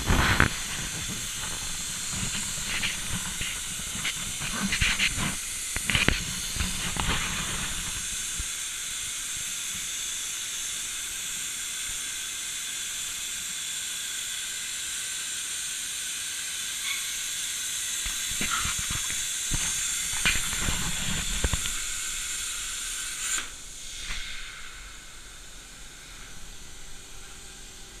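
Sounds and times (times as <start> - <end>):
plasma arc crackling: 0.0 - 13.3, 16.7 - 28.0
plasma arc hissing: 0.0 - 28.0
faint hiss: 16.4 - 28.0.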